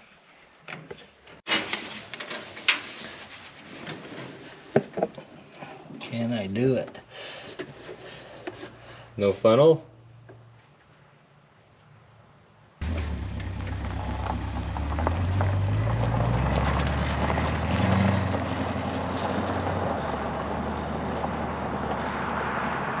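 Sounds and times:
car engine revving and idling: 12.8s - 23.0s.

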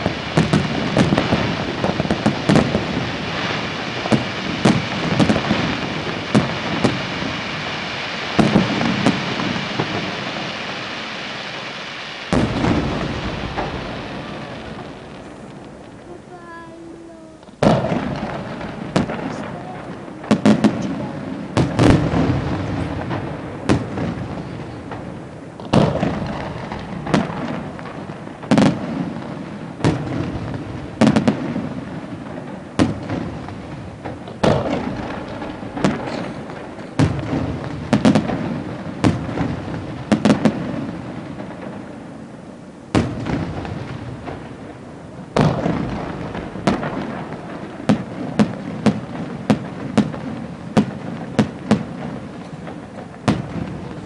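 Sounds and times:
firework shells bursting: 8.4s - 27.9s
rumbling echo: 12.4s - 28.1s.

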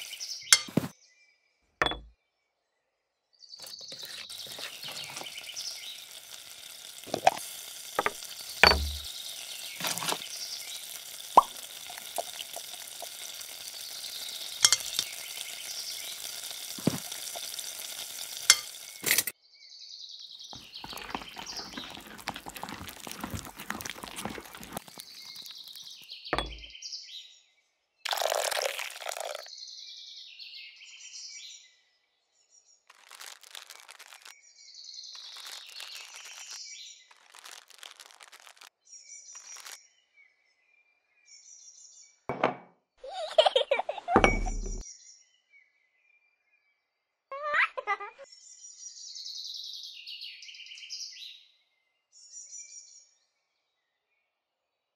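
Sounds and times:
food sizzling: 0.0s - 0.9s, 3.6s - 19.3s, 20.6s - 26.7s, 28.1s - 29.5s, 32.9s - 34.3s, 35.2s - 38.7s, 39.4s - 39.8s
scraping: 20.6s - 25.5s.

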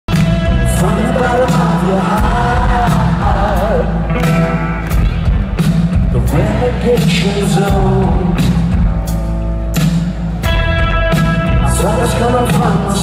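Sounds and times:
live rock band playing: 0.1s - 13.0s.

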